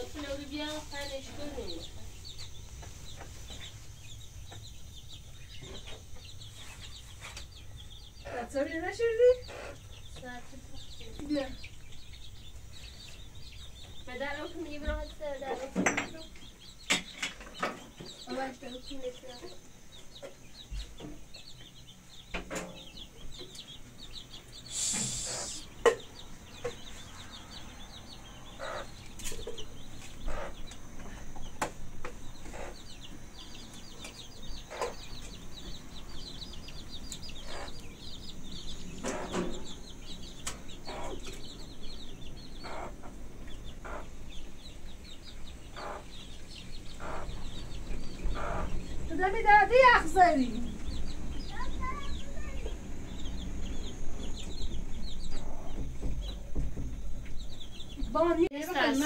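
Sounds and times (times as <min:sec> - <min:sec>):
birds clucking and chirping: 0:00.0 - 0:59.0
short burst of hiss: 0:24.6 - 0:25.7.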